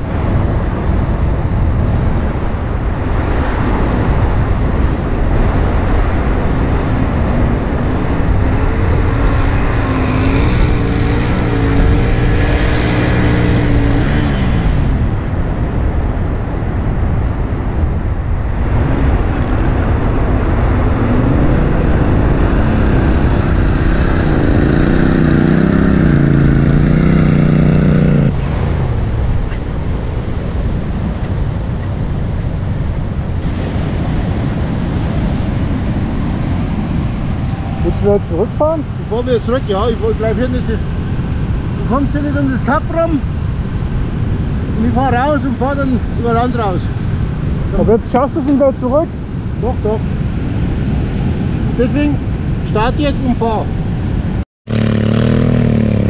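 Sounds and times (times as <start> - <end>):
wind on the microphone: 0.0 - 55.8
motorcycle engine revving: 5.5 - 15.3, 18.8 - 28.5, 54.7 - 56.0.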